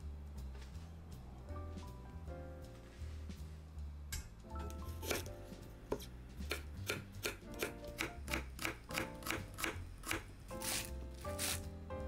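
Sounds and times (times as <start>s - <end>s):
background music: 0.0s - 12.0s
knife chopping on cutting board: 5.0s - 5.3s, 5.9s - 11.6s.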